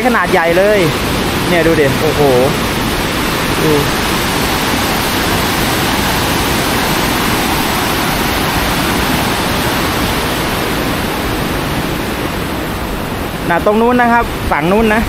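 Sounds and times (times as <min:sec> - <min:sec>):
water rushing over weir: 0:00.0 - 0:15.0.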